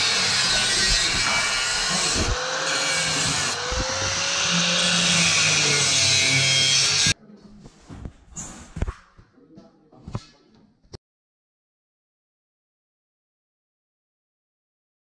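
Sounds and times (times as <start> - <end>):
angle grinder cutting steel: 0.0 - 7.2.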